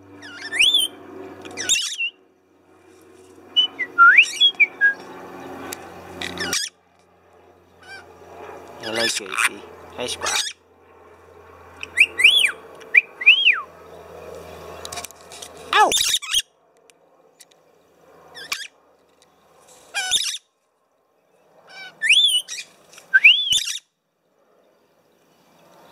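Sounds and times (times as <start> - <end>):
lorikeets whistling and screeching: 0.2 - 2.2, 3.5 - 5.6, 6.2 - 6.8, 7.8 - 8.2, 8.8 - 10.6, 11.8 - 14.6, 15.8 - 16.5, 18.3 - 18.8, 19.9 - 20.5, 21.7 - 23.9.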